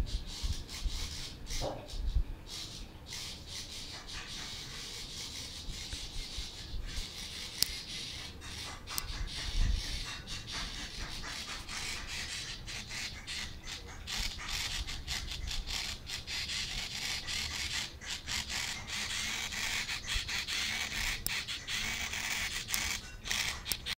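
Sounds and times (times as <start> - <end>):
servo motor buzzing and whirring: 5.2 - 9.9, 14.1 - 24.0.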